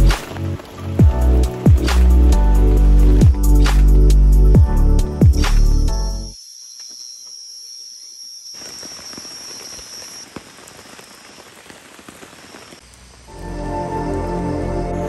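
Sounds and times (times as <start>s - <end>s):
rain drops pattering: 0.0s - 4.7s, 8.4s - 14.3s
music: 0.0s - 6.4s, 13.3s - 15.0s.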